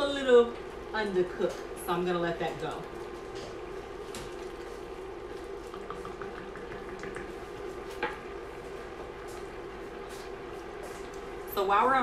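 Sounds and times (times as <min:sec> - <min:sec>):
pot bubbling: 0:03.6 - 0:08.5.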